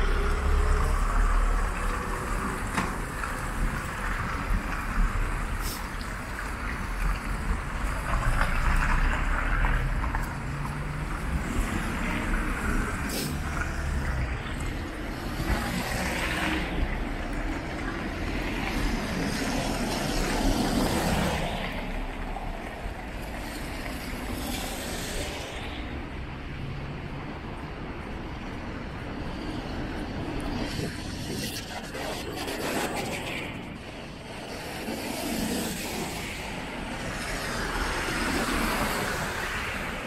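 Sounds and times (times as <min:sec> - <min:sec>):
low traffic rumble: 0:00.0 - 0:40.0
tyre hiss on wet road: 0:05.0 - 0:06.5, 0:12.3 - 0:14.0.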